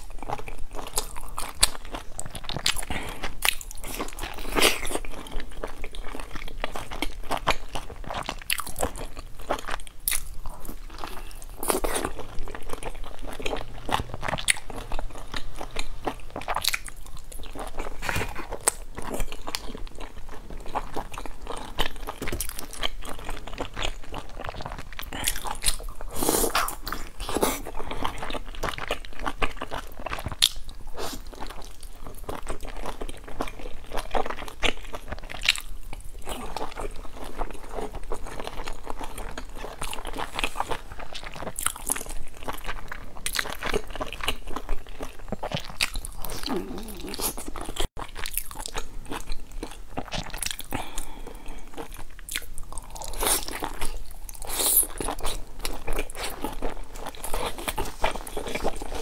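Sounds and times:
crunchy chewing: 0:00.0 - 0:59.0.

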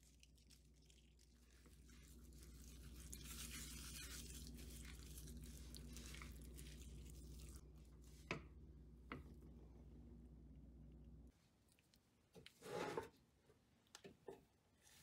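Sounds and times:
plastic glove crinkling: 0:00.0 - 0:07.6
faint low hum: 0:00.0 - 0:12.5.

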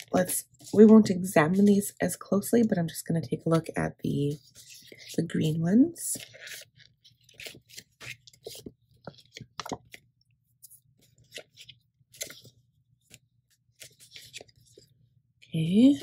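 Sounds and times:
plastic and paper crinkling: 0:00.0 - 0:01.8, 0:04.2 - 0:14.9.

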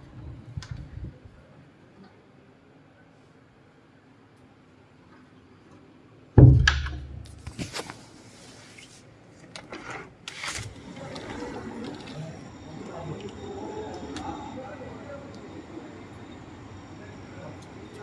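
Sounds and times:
steady background hum: 0:00.0 - 0:18.0
loud bump: 0:06.4 - 0:07.4.

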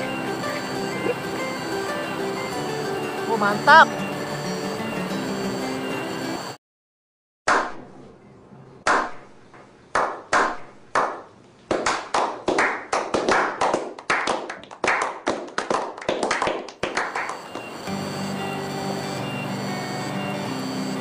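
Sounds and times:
hands clapping: 0:09.9 - 0:17.7.

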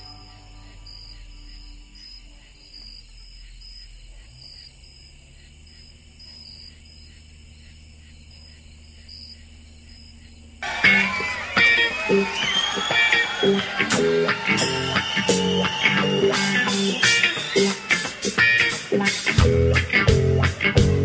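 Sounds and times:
high insect trill: 0:00.0 - 0:20.5
insects chirping: 0:00.0 - 0:21.0
loud guitar music: 0:10.6 - 0:21.0.

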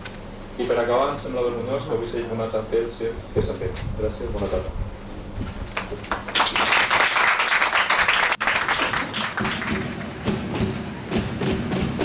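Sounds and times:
audience applauding: 0:05.8 - 0:10.2
music: 0:09.7 - 0:12.0.

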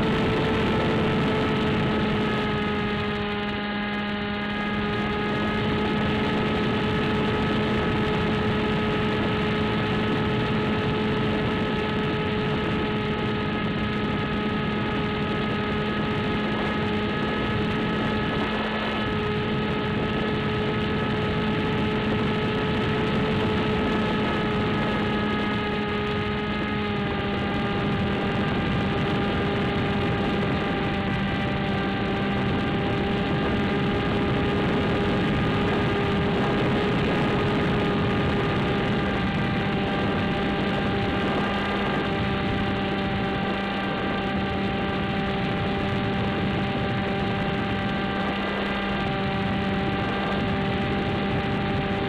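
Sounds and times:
electric motor and propeller drone: 0:00.0 - 0:52.0.

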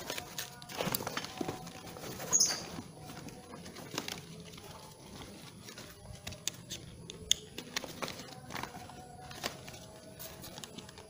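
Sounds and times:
plastic buckles clicking: 0:06.1 - 0:08.6.

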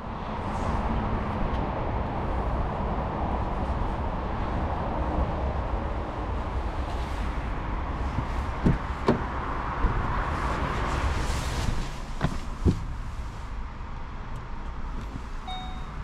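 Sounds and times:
car door handle and latch clicks: 0:08.6 - 0:10.0.

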